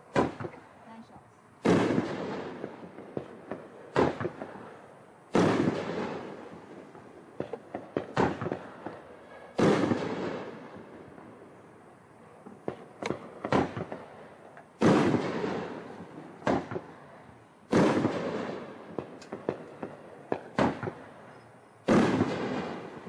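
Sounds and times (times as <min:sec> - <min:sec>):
loud firework booms: 0:00.0 - 0:00.6, 0:01.6 - 0:11.6, 0:12.6 - 0:17.0, 0:17.7 - 0:21.2, 0:21.8 - 0:23.0
sharp firework pops: 0:00.1 - 0:00.6, 0:01.6 - 0:04.7, 0:05.3 - 0:11.3, 0:12.4 - 0:17.0, 0:17.7 - 0:23.0.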